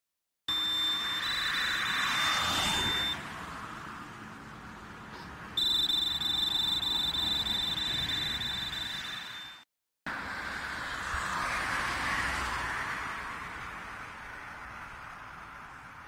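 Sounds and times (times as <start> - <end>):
high-pitched tone: 0.5 - 3.2, 5.6 - 9.6
rushing noise: 0.5 - 3.7.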